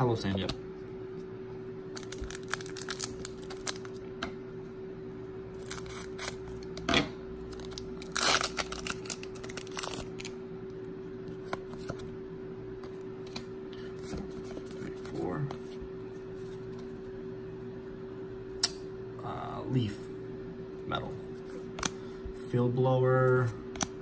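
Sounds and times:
steady low hum: 0.0 - 24.0
scissors cutting foil packet: 2.0 - 4.0, 5.6 - 6.4, 7.5 - 10.3.

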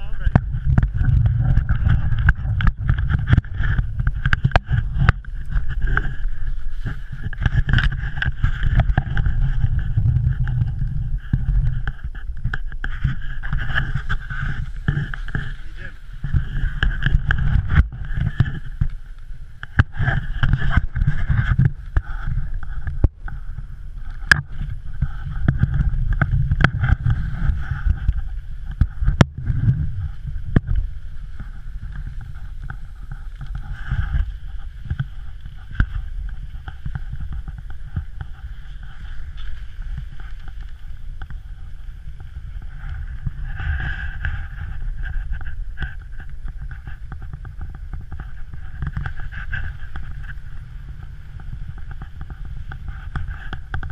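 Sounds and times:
wind buffeting microphone: 0.0 - 53.9.

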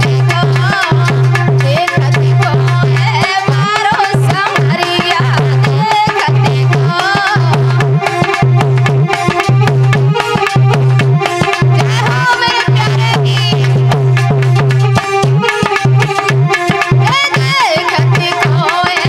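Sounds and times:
bending melody line: 0.0 - 19.0
hand drum beat: 0.0 - 19.0.

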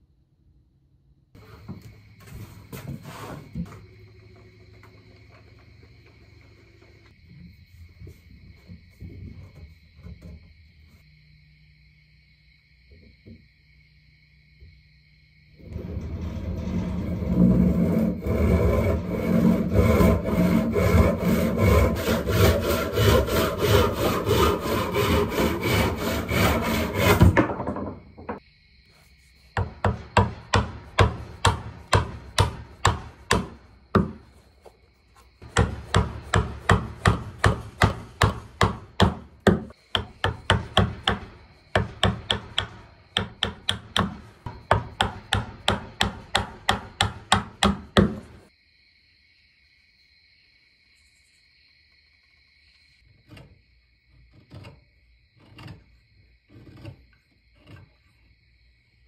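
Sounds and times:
hand tool scraping wooden handle: 1.4 - 4.0, 15.6 - 28.4, 29.0 - 48.4, 53.1 - 58.5.

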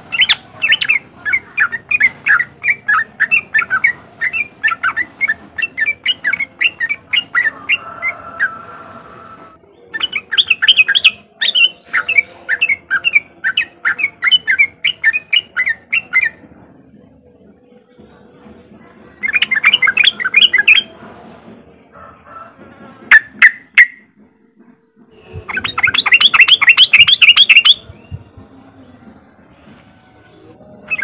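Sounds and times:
bird chattering call: 25.4 - 28.1.

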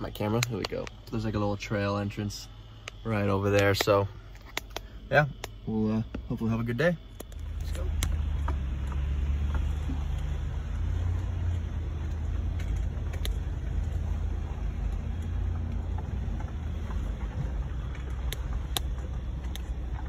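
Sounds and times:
engine and tyres rumbling: 0.0 - 20.0
sharp clicks: 0.1 - 1.2, 2.7 - 6.3, 7.1 - 9.0, 12.1 - 13.7, 17.7 - 20.0.

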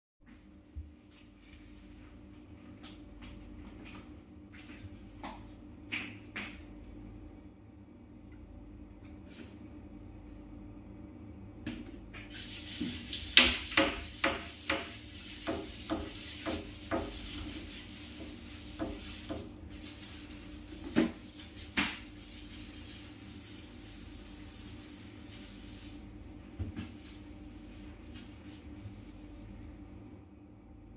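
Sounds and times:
sponge scrubbing surfaces: 12.2 - 29.5.

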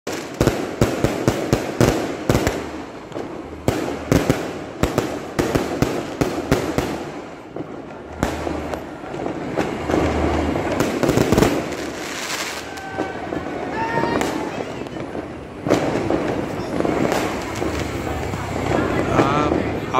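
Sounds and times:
fireworks bangs and crackles: 0.1 - 19.9.

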